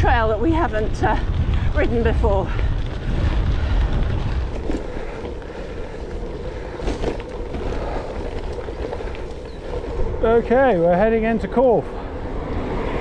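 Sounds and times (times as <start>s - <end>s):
bike humming: 0.0s - 13.0s
wind rumbling on microphone: 0.0s - 13.0s.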